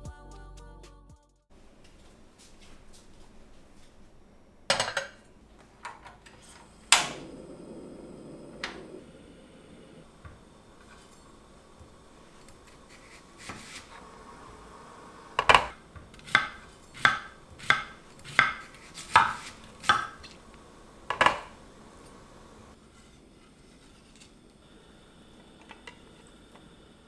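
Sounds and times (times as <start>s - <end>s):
knife chopping onion on board: 15.4s - 20.2s.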